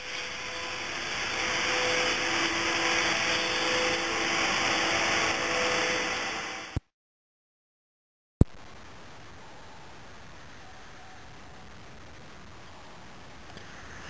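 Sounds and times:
faint motor hum: 0:00.0 - 0:06.8
steady whooshing machine noise: 0:00.0 - 0:06.8.

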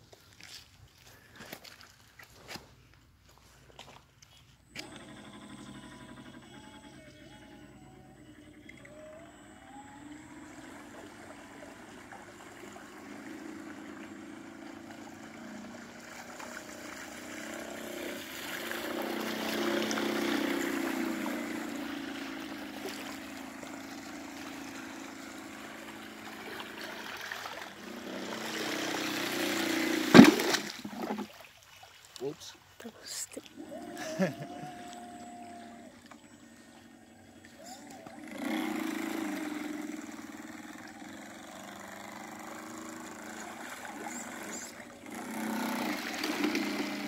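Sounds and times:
model boat motor whining: 0:04.7 - 0:31.2, 0:33.4 - 0:47.0
hull splashing through water: 0:10.5 - 0:32.4, 0:37.2 - 0:47.0.

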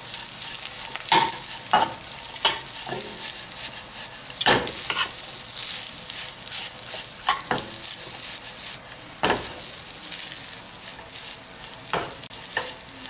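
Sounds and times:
fried rice sizzling in a pan: 0:00.0 - 0:13.0
metal ladle scraping a pan: 0:00.2 - 0:05.2.

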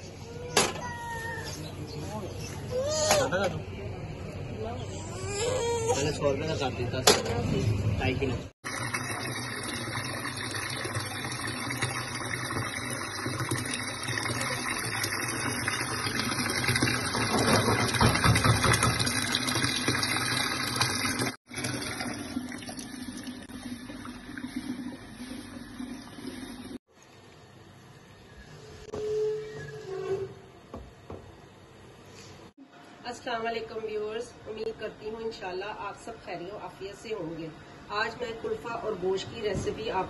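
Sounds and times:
tap water pouring into a tub: 0:08.6 - 0:26.8.

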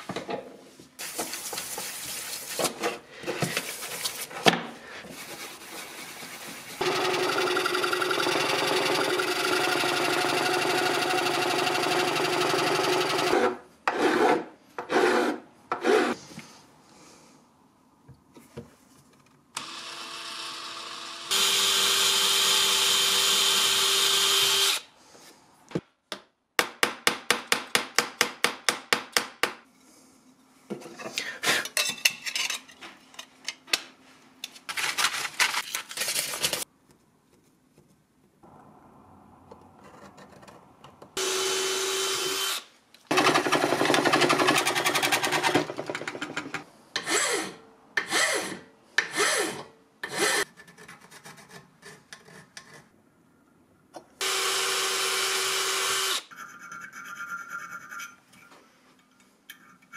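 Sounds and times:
electric drill running: 0:19.6 - 0:24.9, 0:41.2 - 0:44.2, 0:54.2 - 0:56.3.

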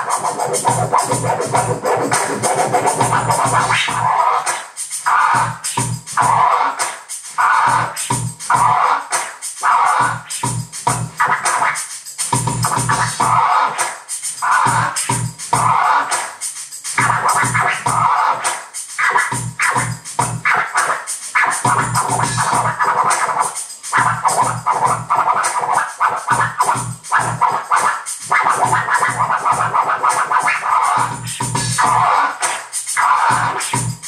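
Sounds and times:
backing beat with kick drum: 0:00.0 - 0:34.0
vinyl record scratching: 0:00.0 - 0:34.0.

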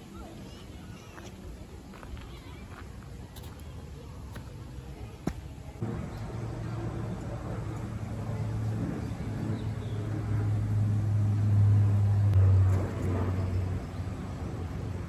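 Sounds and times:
vehicle engine passing by: 0:05.8 - 0:15.0.

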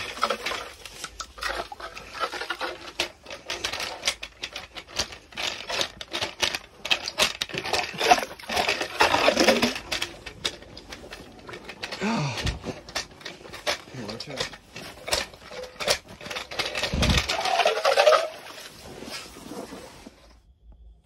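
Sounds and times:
snow and ice crunching and scraping: 0:13.8 - 0:20.4.

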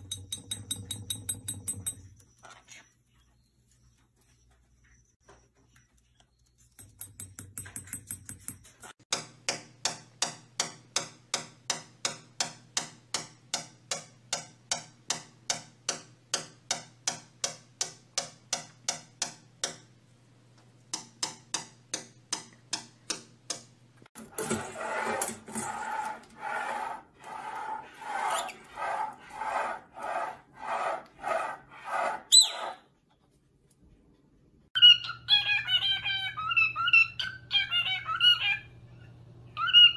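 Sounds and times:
parrot rising whistle: 0:31.9 - 0:32.8
parrot squeaky calls: 0:32.3 - 0:32.9, 0:34.8 - 0:38.8, 0:39.6 - 0:39.9.

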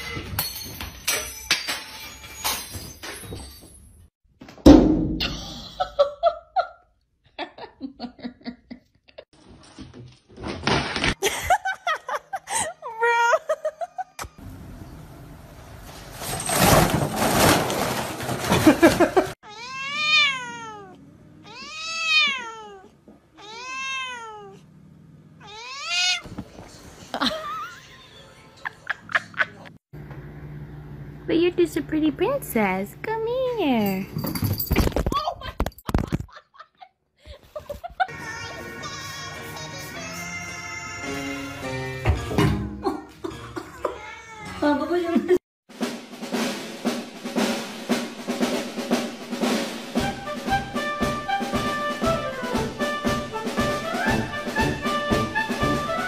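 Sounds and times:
loud heavy thud: 0:04.6 - 0:05.3
cat meowing: 0:19.4 - 0:24.6, 0:25.4 - 0:26.3, 0:43.9 - 0:44.6.

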